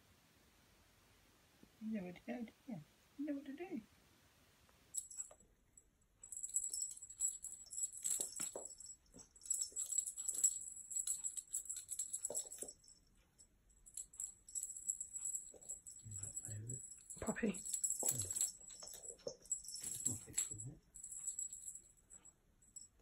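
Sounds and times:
small bell jingling: 0:04.9 - 0:23.0.

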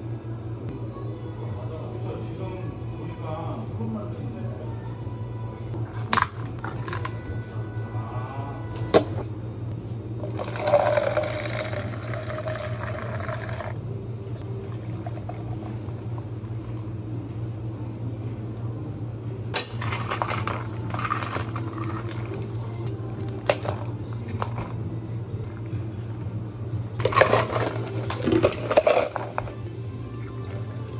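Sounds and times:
steady low hum: 0:00.0 - 0:30.9
liquid poured into plastic cup: 0:10.3 - 0:13.8.

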